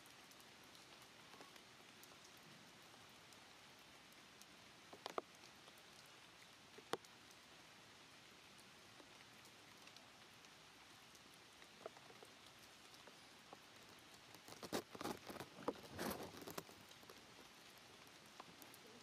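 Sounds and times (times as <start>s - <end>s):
faint background hiss: 0.0s - 19.0s
dry twig and leaves crackling: 11.7s - 19.0s.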